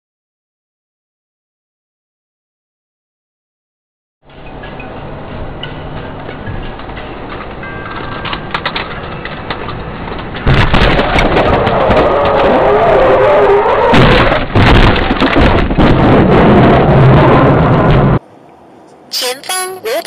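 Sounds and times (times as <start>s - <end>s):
road noise inside car: 4.3s - 20.0s
crashing scraping and cracking: 6.8s - 18.2s
car crash impact: 10.4s - 18.2s.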